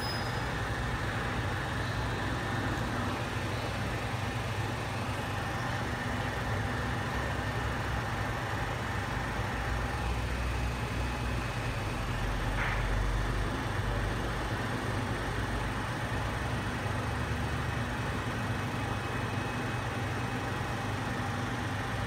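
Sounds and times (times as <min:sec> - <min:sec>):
faint high whine: 0:00.0 - 0:00.6.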